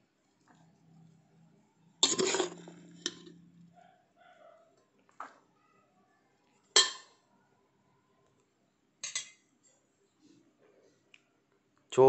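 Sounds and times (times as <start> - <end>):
metal spoon clanking on steel: 2.0 - 3.4, 6.8 - 7.1, 9.0 - 9.4.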